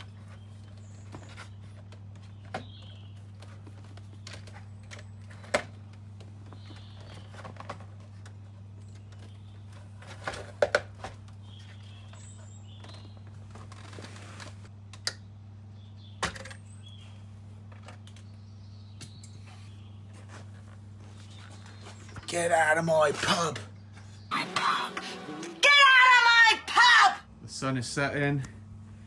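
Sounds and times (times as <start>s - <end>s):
steady low hum: 27.2s - 29.0s.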